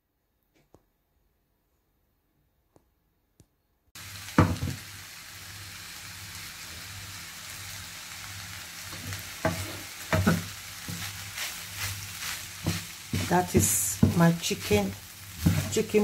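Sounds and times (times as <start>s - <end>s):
fried rice sizzling in a pan: 4.0s - 16.0s
spatula scraping through rice: 9.1s - 15.8s.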